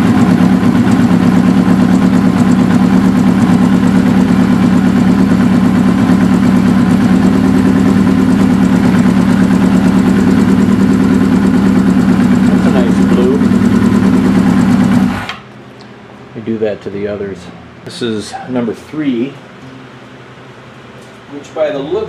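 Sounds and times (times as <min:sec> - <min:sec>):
motorcycle engine idling: 0:00.0 - 0:15.2.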